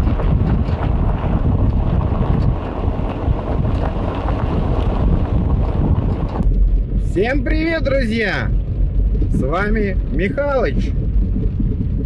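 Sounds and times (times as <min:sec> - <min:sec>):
tyres rumbling on dirt road: 0:00.0 - 0:12.0
wind buffeting microphone: 0:00.0 - 0:12.0.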